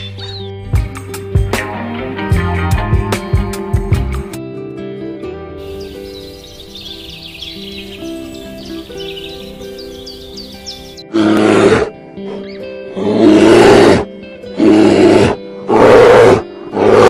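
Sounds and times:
background music sustained tones: 0.0 - 17.0
large animal roaring: 11.1 - 12.0, 12.9 - 17.0.

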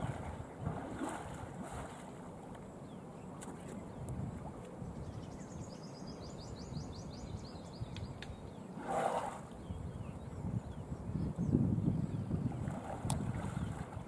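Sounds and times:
water splash: 0.0 - 2.2
low wind: 0.0 - 14.0
water noise: 0.0 - 14.0.

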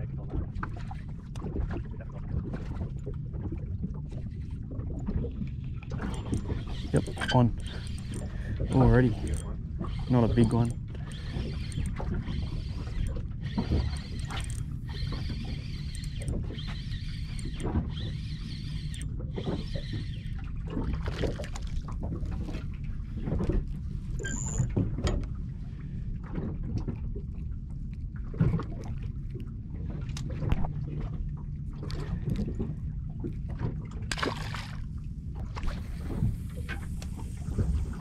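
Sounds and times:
boat engine low rumble: 0.0 - 38.0.

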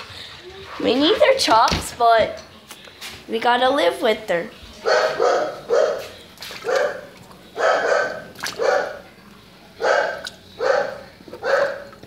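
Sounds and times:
dog barking: 4.8 - 9.0, 9.8 - 12.0.

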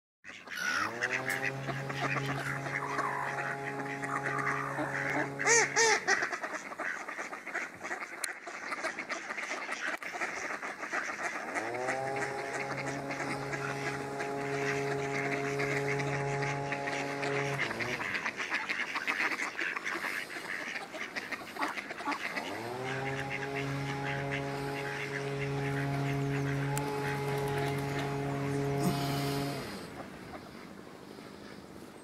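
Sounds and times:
ducks quacking: 0.3 - 31.7
low droning tone: 0.7 - 6.3, 11.4 - 18.7, 22.4 - 30.5.

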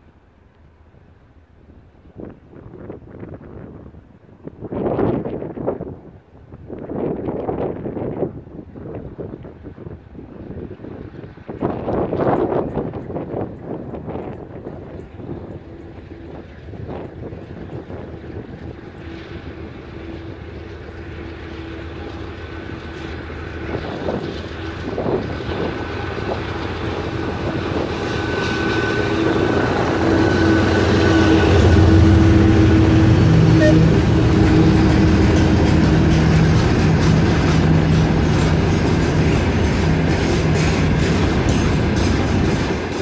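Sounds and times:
diesel locomotive engine under load: 8.3 - 43.0
steady high tone: 27.3 - 38.2
train wheels clacking over rail joints: 34.0 - 43.0.

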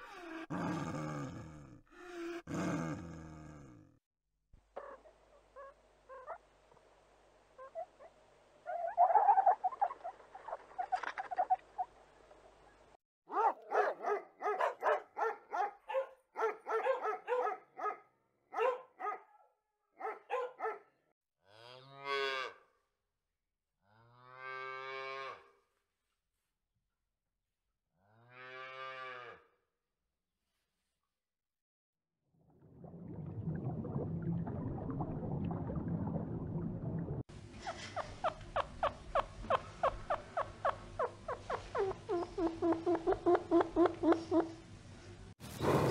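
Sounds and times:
dog barking: 13.3 - 20.9.

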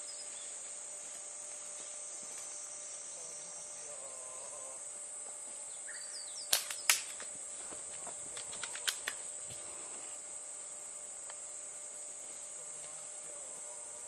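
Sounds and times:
high insect drone: 0.0 - 14.0
airsoft gunfire cracks: 6.5 - 7.2.

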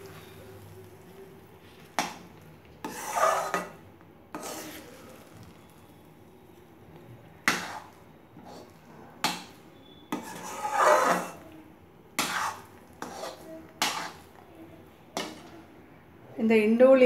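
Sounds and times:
metal spatula scraping a pan: 1.9 - 5.9, 7.4 - 11.5, 12.2 - 14.4, 15.1 - 15.6.

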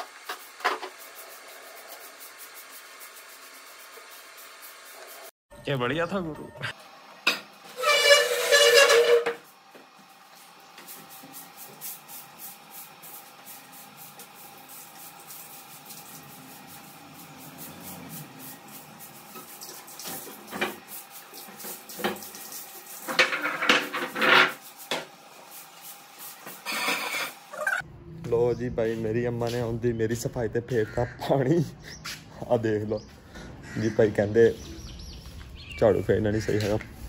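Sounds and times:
broom sweeping concrete floor: 0.0 - 5.3, 7.7 - 9.7, 10.3 - 27.4.

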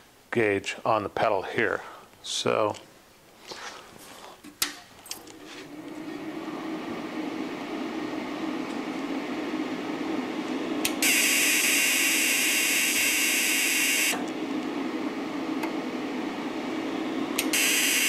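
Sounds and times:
low hum: 5.2 - 11.0.

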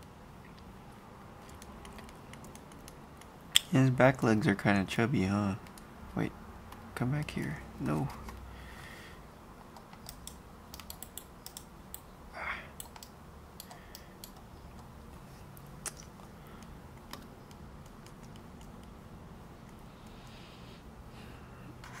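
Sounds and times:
low steady hum: 0.0 - 22.0
keyboard and mouse clicking: 1.4 - 3.7, 5.6 - 5.9, 9.7 - 12.1, 12.8 - 14.9, 15.8 - 19.0.

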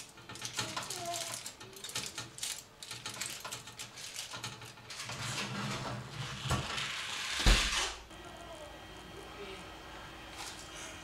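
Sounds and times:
aluminium foil crinkling: 0.0 - 5.6.

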